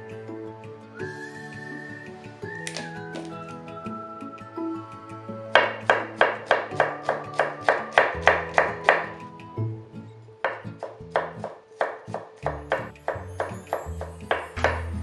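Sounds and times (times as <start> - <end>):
background music: 0.0 - 15.0
knife chopping on wooden board: 5.6 - 9.1, 10.5 - 14.9.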